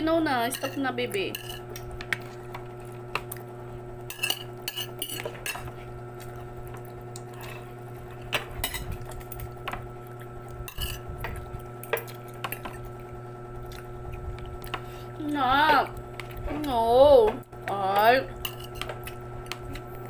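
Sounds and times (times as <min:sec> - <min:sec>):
steady low hum: 0:00.0 - 0:20.0
cutlery clinking against a dish: 0:00.5 - 0:01.7, 0:04.1 - 0:05.7, 0:10.7 - 0:11.0, 0:18.4 - 0:19.0.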